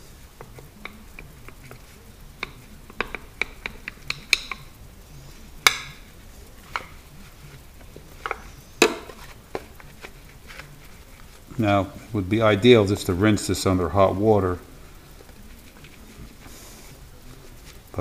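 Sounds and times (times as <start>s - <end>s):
plastic knocks: 8.2s - 9.8s
paper towel rubbing plastic: 15.2s - 18.0s.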